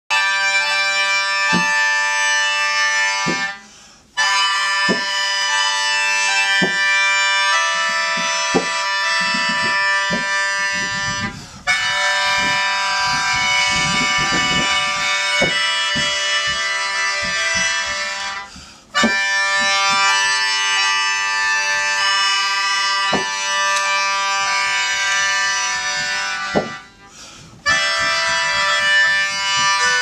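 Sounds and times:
mouth organ sustaining a chord: 0.1 - 3.6, 4.2 - 30.0
soft low knocks: 1.5 - 1.8, 6.5 - 7.0, 7.7 - 20.9, 23.0 - 30.0.

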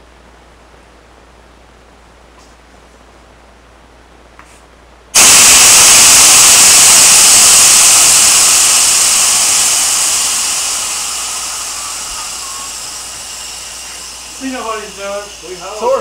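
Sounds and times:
compressed gas hissing: 5.2 - 16.0.

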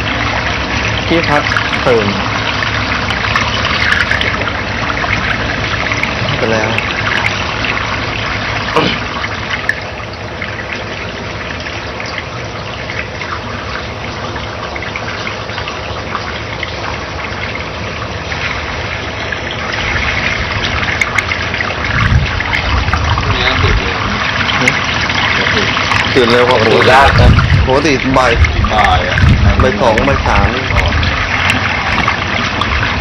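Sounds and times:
running water rushing: 0.0 - 33.0.

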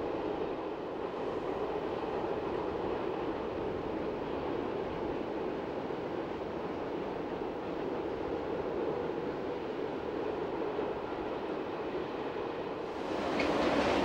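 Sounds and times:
freight train rumbling: 0.0 - 14.0.

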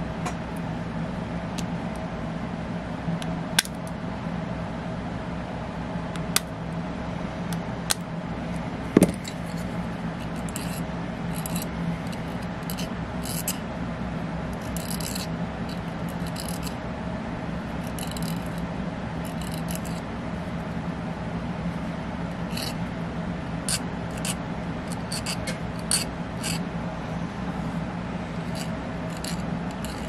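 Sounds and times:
steady low hum: 0.0 - 30.0
hand tool scraping: 9.0 - 13.6, 14.6 - 16.8, 17.8 - 18.6, 19.2 - 20.0, 22.5 - 22.8, 23.7 - 26.6, 28.3 - 30.0.

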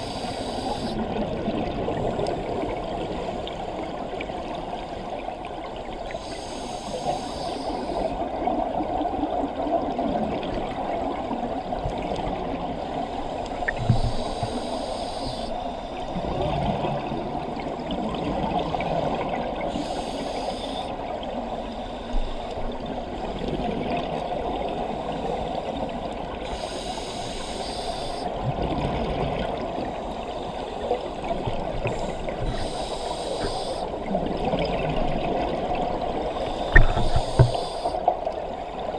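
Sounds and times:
regulator hiss on inhalation: 0.0 - 1.0, 6.1 - 8.2, 13.7 - 15.9, 19.7 - 20.9, 26.4 - 28.3, 31.9 - 34.0, 36.3 - 38.1
underwater water noise: 0.0 - 38.9
exhaled bubbles underwater: 16.1 - 20.0, 28.0 - 30.2, 30.8 - 38.9.

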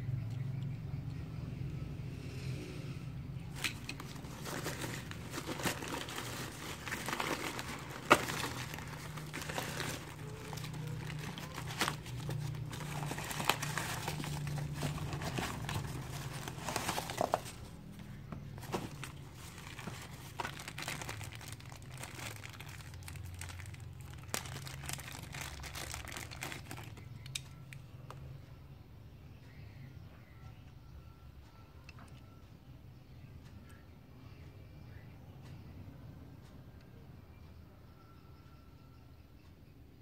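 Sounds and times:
plastic wrapping crinkling: 3.5 - 27.4
cardboard tearing and crumpling: 3.6 - 17.8, 18.6 - 27.0.

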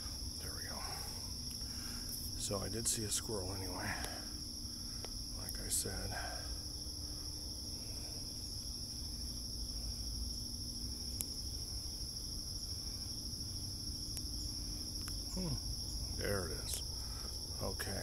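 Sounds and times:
crickets chirping: 0.0 - 18.0
faint clicks: 15.0 - 15.2.

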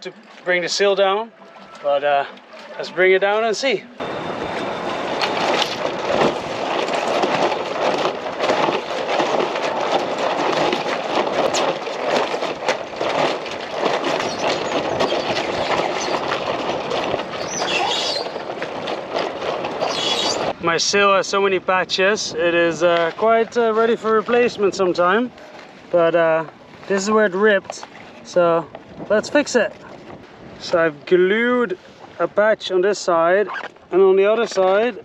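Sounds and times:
wind rushing and buffeting: 4.0 - 27.1, 27.9 - 32.3
sail flapping and cracking: 4.6 - 20.6, 22.6 - 30.8, 33.4 - 35.0.

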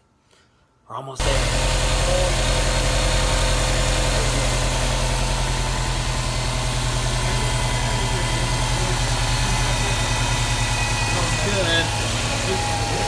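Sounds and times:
car engine idling: 1.2 - 13.0.

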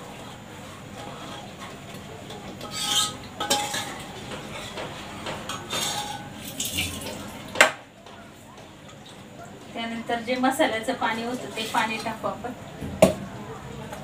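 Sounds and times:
metal pots and cup clinking: 2.3 - 7.8.

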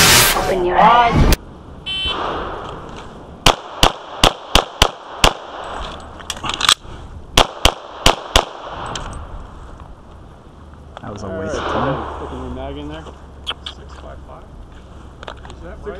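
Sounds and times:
pistol shots: 3.4 - 5.8, 7.4 - 9.0.

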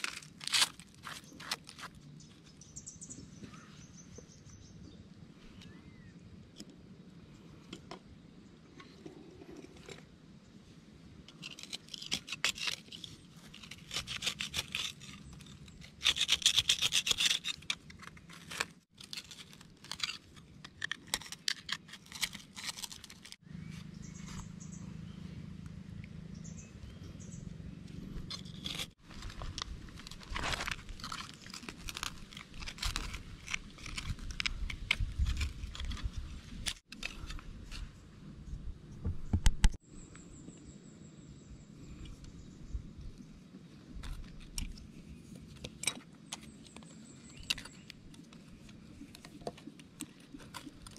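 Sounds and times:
saw scraping into dry soil: 11.3 - 23.4, 28.2 - 38.0.

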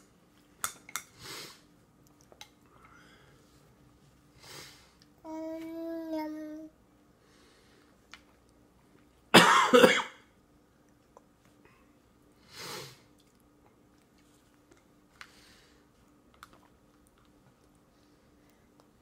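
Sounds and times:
person coughing: 9.4 - 10.2.

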